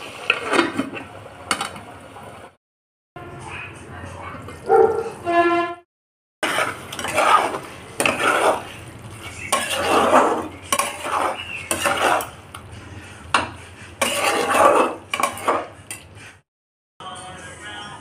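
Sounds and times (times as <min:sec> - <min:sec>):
metal spatula scraping in a metal pan: 0:06.4 - 0:16.4.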